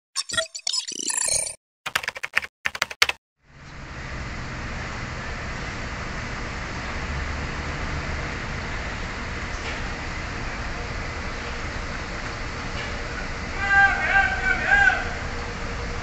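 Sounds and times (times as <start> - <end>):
keyboard key clicks: 1.9 - 3.2
low rumble of traffic: 3.4 - 16.0.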